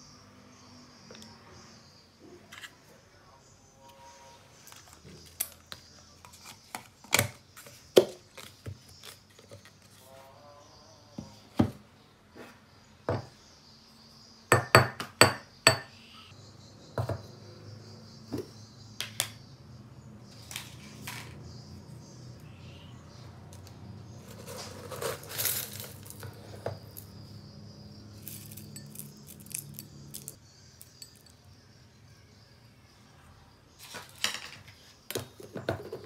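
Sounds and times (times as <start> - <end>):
spoon knocking on bowl and tub: 14.5 - 15.9.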